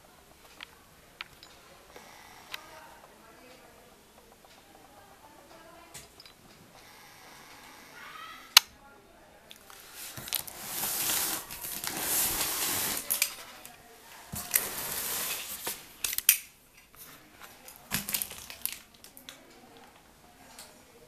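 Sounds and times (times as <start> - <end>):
rustling and scraping: 9.6 - 18.9.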